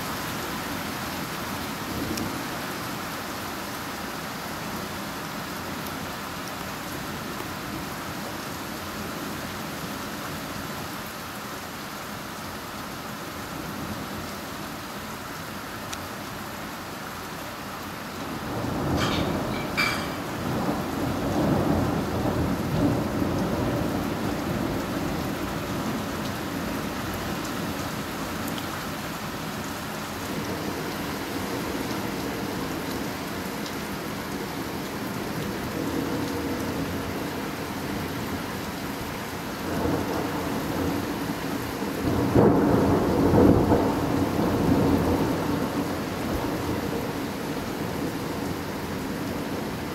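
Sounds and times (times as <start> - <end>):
steady rain falling: 0.0 - 49.9
rolling thunder: 18.4 - 25.9, 42.0 - 45.9.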